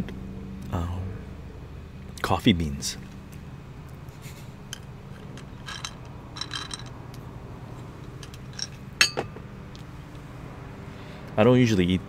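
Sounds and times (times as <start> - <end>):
steady low hum: 0.0 - 12.0
handling clicks and rustles: 3.0 - 10.2.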